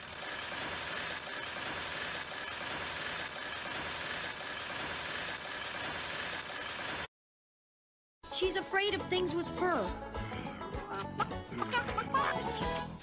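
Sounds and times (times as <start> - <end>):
bicycle generator whirring: 0.0 - 7.1.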